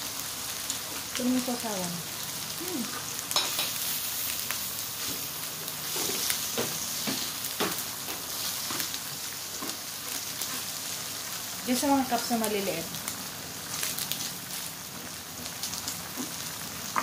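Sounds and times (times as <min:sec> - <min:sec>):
food sizzling in oil: 0:00.0 - 0:17.0.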